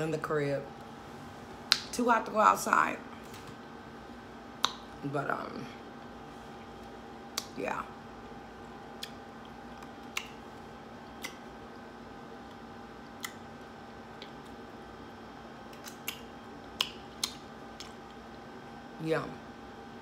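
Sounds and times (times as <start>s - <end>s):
faint steady hum: 0.0s - 20.0s
lip smacks and clicks: 1.7s - 1.9s, 4.6s - 5.0s, 6.6s - 7.6s, 8.9s - 14.7s, 15.6s - 18.4s
person chewing: 8.6s - 14.8s, 15.7s - 18.4s.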